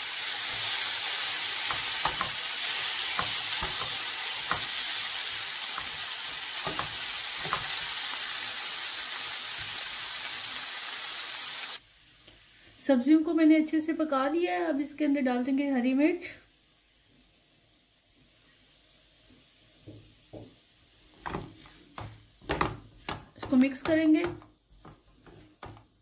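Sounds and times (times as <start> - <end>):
vegetables sizzling in oil: 0.0 - 26.0
spatula scraping and tapping pan: 1.6 - 8.0, 21.2 - 26.0.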